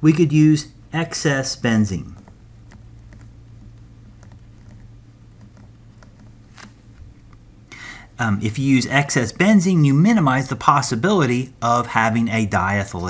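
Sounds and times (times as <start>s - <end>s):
steady low hum: 0.0s - 13.0s
stylus tapping and scratching: 1.8s - 7.5s.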